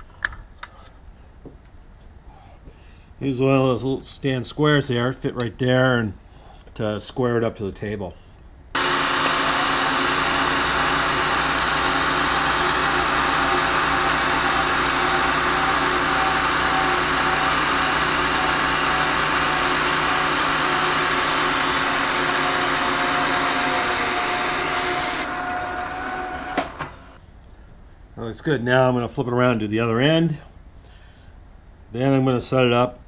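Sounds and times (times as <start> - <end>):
milling machine hiss: 8.8 - 27.2
milling machine whine: 8.8 - 27.2.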